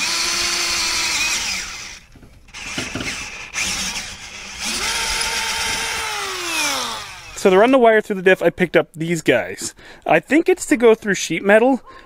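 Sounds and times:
power drill boring metal: 0.0s - 7.6s.

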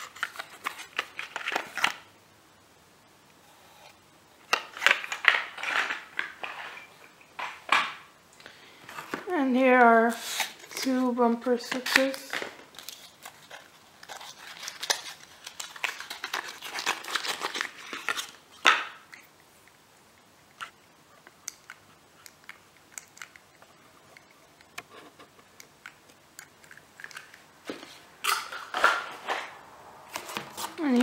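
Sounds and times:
cardboard packaging rustling: 0.0s - 2.1s, 4.4s - 7.9s, 8.8s - 19.0s, 26.6s - 31.0s.

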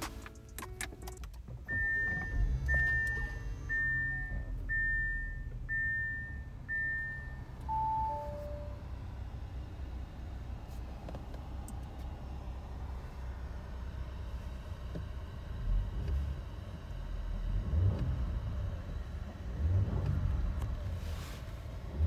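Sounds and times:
car engine running: 0.0s - 22.0s
car warning chime beeping: 1.6s - 9.2s.

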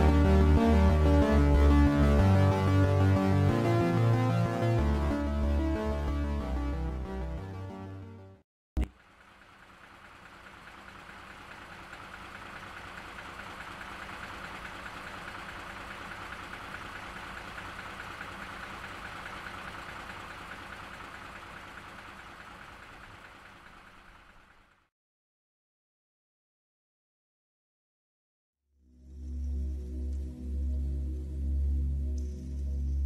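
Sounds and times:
tractor engine running: 8.8s - 24.9s.

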